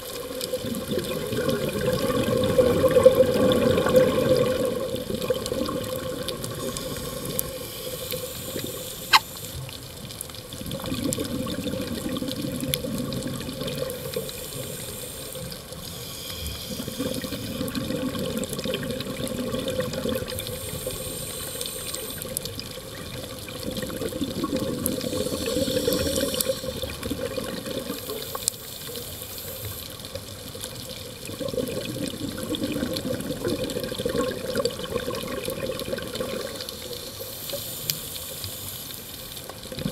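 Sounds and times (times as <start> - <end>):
gurgling rush of exhaled bubbles: 0.2 - 9.3, 10.5 - 15.8, 16.7 - 28.6, 30.8 - 37.1, 39.6 - 39.9
regulator hiss on inhale: 6.5 - 9.8, 13.8 - 17.8, 20.3 - 22.4, 24.8 - 27.0, 27.8 - 30.2, 36.6 - 39.5.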